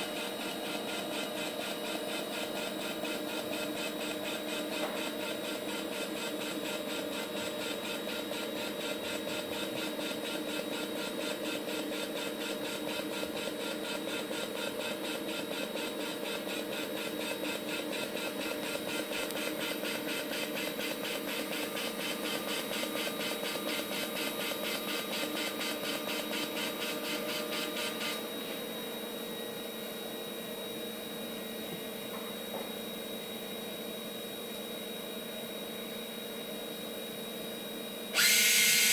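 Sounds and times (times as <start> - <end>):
steady machine hum: 0.0 - 32.0, 38.1 - 38.9
welding arc buzzing: 38.2 - 38.9.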